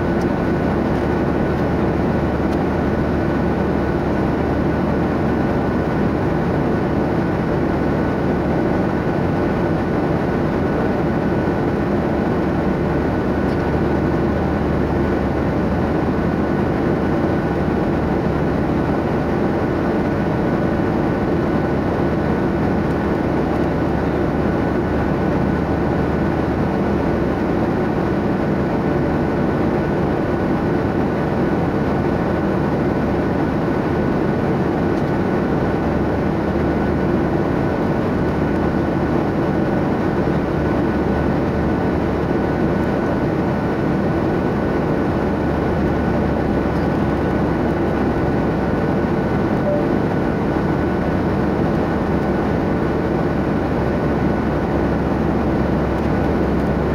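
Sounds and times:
airliner cabin engine rush: 0:00.0 - 0:56.9
faint thin high tone: 0:49.6 - 0:50.2.

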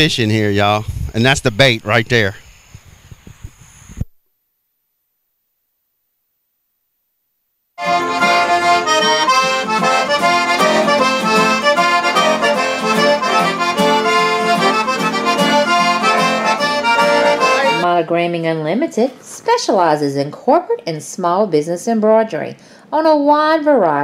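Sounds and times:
accordion background music: 0:07.8 - 0:18.1.

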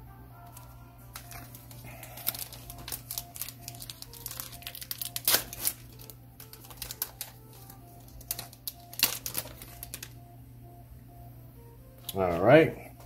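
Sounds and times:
foil wrapper crinkling and tearing: 0:00.5 - 0:10.2.

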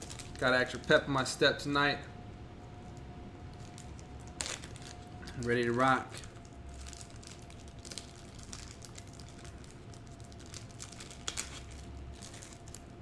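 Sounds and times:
faint steady hum: 0:00.0 - 0:13.0
faint crinkling: 0:02.6 - 0:13.0.

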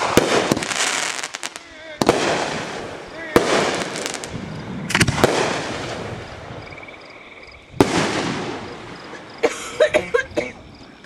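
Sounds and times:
firework shells bursting: 0:00.0 - 0:06.4.

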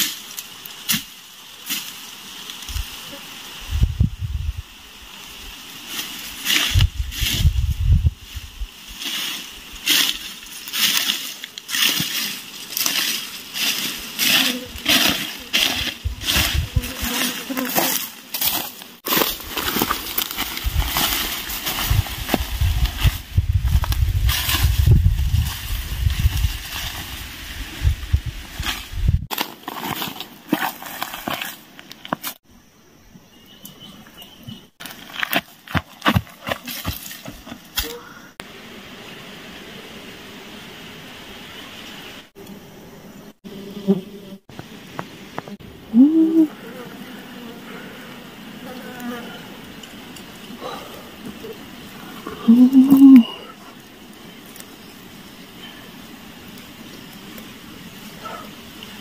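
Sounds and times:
footsteps crunching through dry grass: 0:05.8 - 0:32.4, 0:34.8 - 0:37.8.

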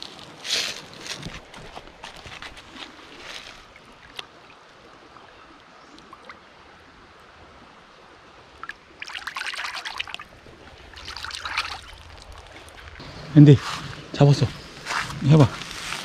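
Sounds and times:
creek water over rocks: 0:00.0 - 0:16.0.

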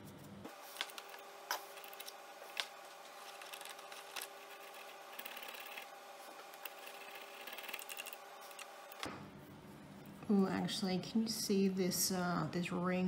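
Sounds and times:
brush scratching and clicking: 0:01.7 - 0:09.0.

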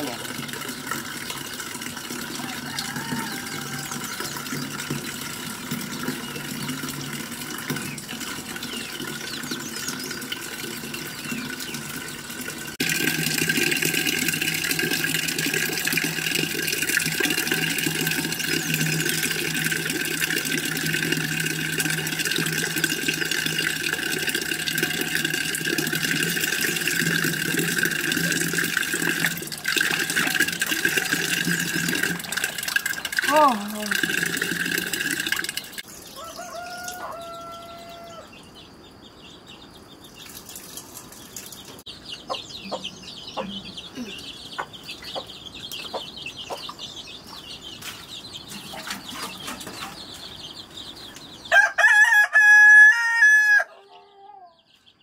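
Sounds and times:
tap water splashing into metal pot: 0:12.8 - 0:33.3.

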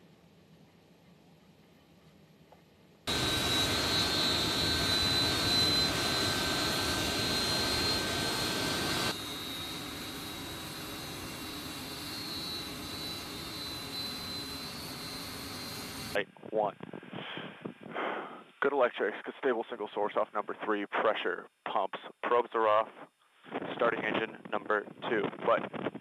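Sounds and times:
jet engines roaring with whine: 0:03.1 - 0:16.2.

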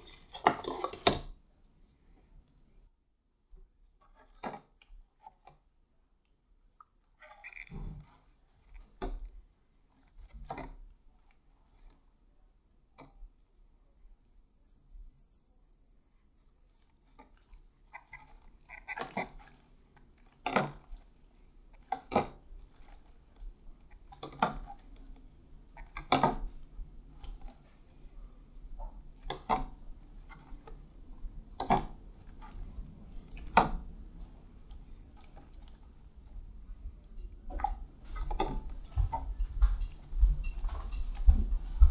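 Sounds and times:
slime stirring and scraping: 0:00.0 - 0:01.4, 0:06.4 - 0:12.3, 0:16.2 - 0:41.9.

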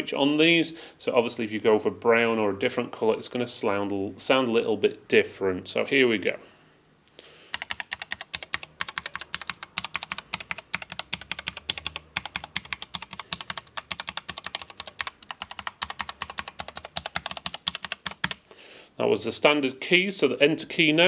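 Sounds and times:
mechanical keyboard typing: 0:07.5 - 0:18.4.

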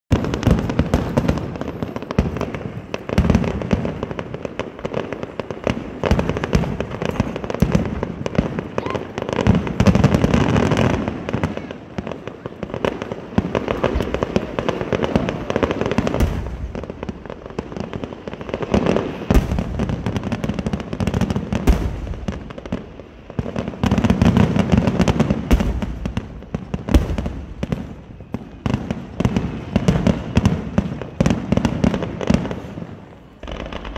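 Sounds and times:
fireworks bursting: 0:00.1 - 0:33.9.

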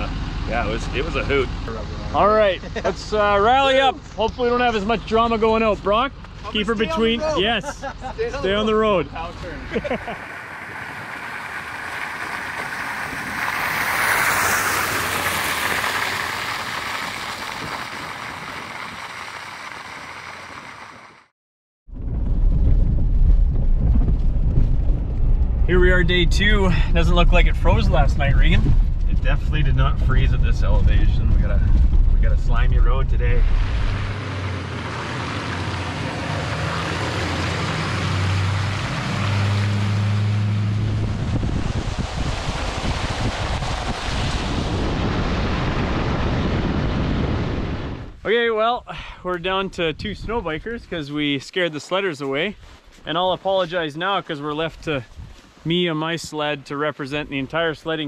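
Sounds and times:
truck passing on wet road: 0:09.0 - 0:21.3, 0:33.4 - 0:47.9
wind buffeting microphone: 0:10.1 - 0:19.6, 0:21.9 - 0:34.4, 0:40.5 - 0:48.2
rumble inside truck cab: 0:21.9 - 0:48.2.

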